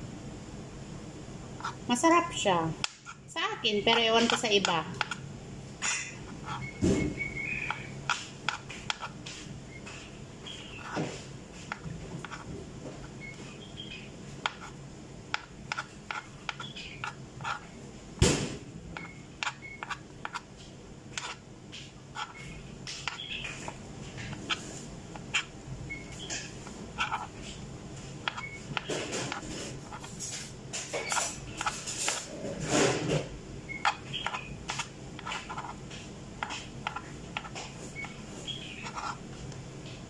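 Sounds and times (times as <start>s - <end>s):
knife tapping cutting board: 3.9s - 5.2s, 36.4s - 37.6s
faint high chirps: 25.8s - 26.4s.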